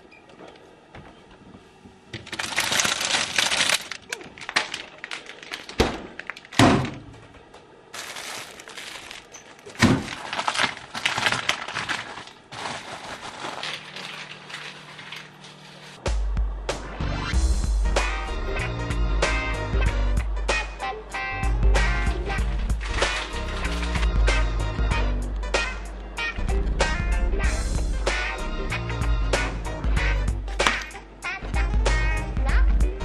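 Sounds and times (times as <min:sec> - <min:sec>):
plastic packaging crinkling: 0:02.2 - 0:06.6, 0:07.9 - 0:16.0, 0:22.7 - 0:24.2.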